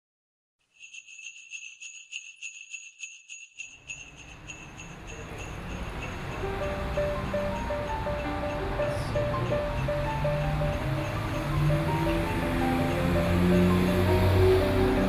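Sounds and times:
sleigh bells shaken: 0:00.6 - 0:15.0
low musical swell: 0:05.6 - 0:15.0.

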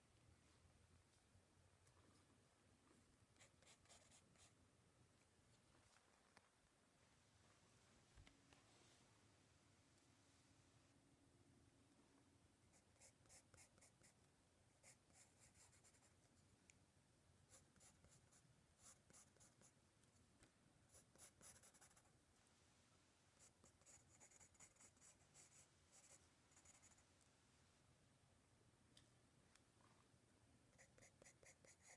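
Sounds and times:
pencil scratching on paper: 0:03.4 - 0:04.5, 0:20.9 - 0:22.1, 0:23.4 - 0:27.0, 0:30.8 - 0:31.9.

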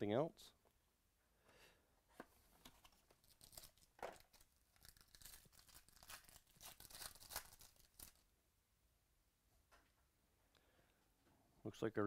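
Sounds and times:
foil wrapper tearing and crinkling: 0:03.2 - 0:08.2.

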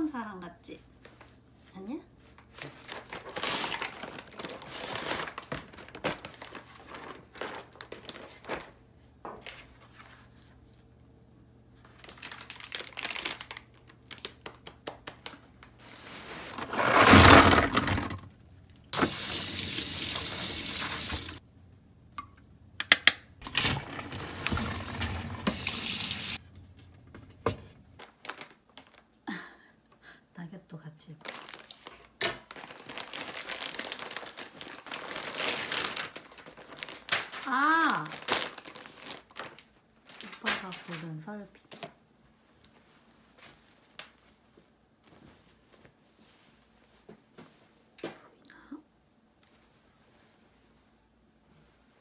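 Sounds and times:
packaging rustling: 0:02.4 - 0:08.8, 0:11.9 - 0:18.2, 0:23.4 - 0:26.4, 0:28.0 - 0:29.1, 0:31.2 - 0:41.0.

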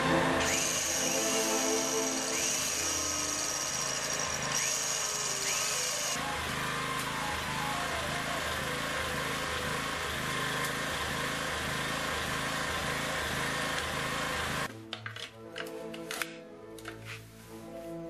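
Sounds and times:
electric drill whining: 0:00.4 - 0:14.7.

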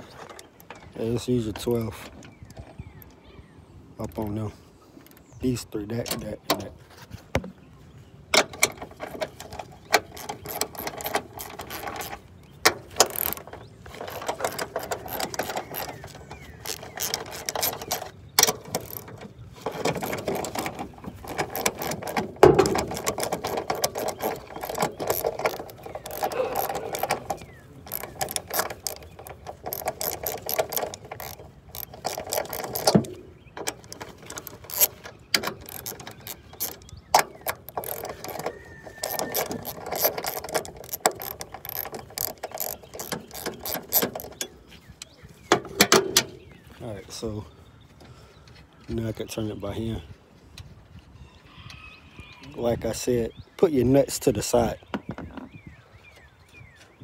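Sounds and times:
ratchet wrench clicking: 0:08.6 - 0:12.2, 0:13.0 - 0:44.4.

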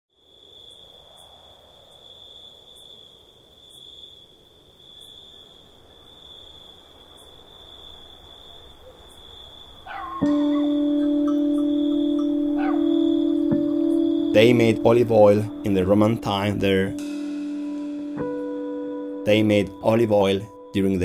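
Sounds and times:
crickets chirring: 0:00.1 - 0:21.0
faint outdoor ambience: 0:00.1 - 0:21.0
low chime ringing: 0:10.2 - 0:21.0.

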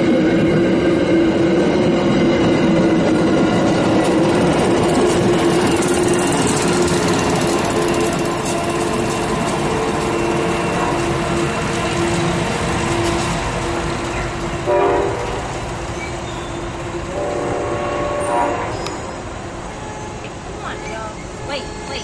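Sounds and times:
electric locomotive hum: 0:00.0 - 0:22.0
rolling train noise: 0:00.0 - 0:22.0
train horn blast: 0:14.6 - 0:15.5, 0:17.1 - 0:19.1.

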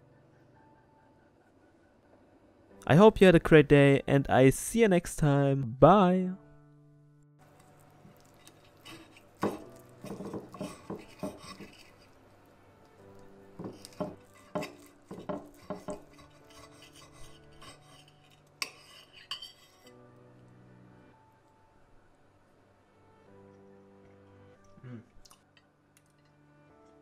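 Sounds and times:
soft background music: 0:00.0 - 0:27.0
knife and fork scraping a plate: 0:07.6 - 0:12.2, 0:13.6 - 0:20.0.

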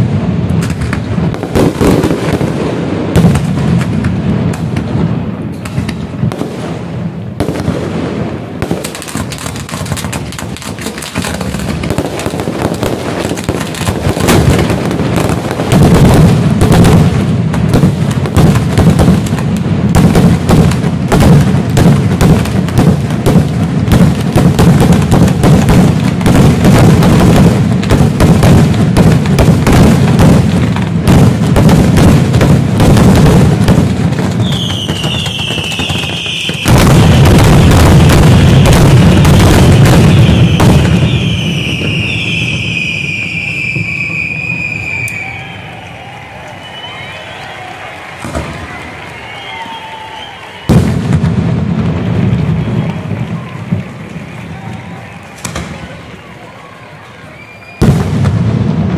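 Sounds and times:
fireworks bangs and crackles: 0:00.0 - 0:58.9.

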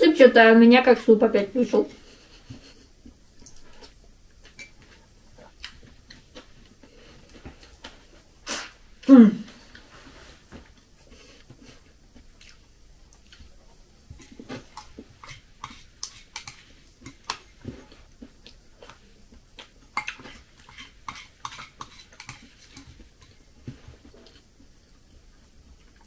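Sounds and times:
chewing and mouth noises: 0:10.8 - 0:24.7
spoon scraping ceramic bowl: 0:20.0 - 0:23.0.

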